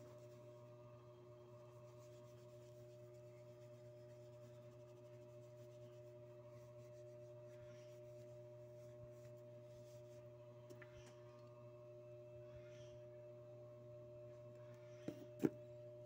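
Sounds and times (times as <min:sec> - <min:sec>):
steady low hum: 0:00.0 - 0:16.0
cloth rubbing on metal: 0:01.6 - 0:10.4.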